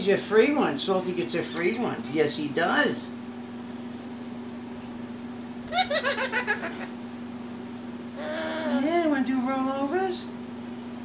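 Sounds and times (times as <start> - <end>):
giggling laughter: 5.7 - 7.0.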